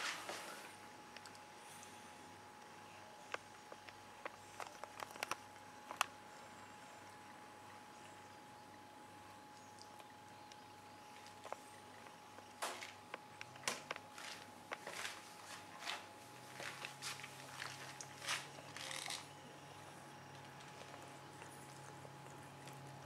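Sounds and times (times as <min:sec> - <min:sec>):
faint steady hum: 0:00.0 - 0:23.0
cats pawing clicks and scratches: 0:03.3 - 0:06.2.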